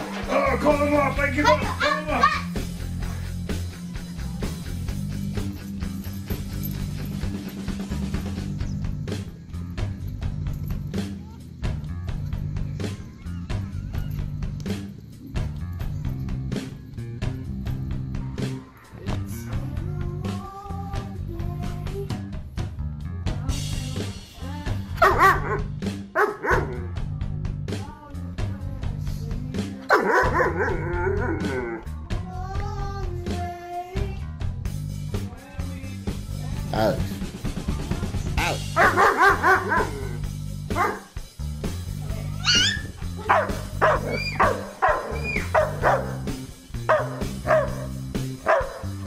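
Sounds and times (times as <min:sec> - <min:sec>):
background music with steady beat: 0:00.0 - 0:49.0
dog whining: 0:25.0 - 0:26.8, 0:29.9 - 0:31.9, 0:38.4 - 0:41.0, 0:42.3 - 0:46.3, 0:46.9 - 0:47.9, 0:48.5 - 0:48.9.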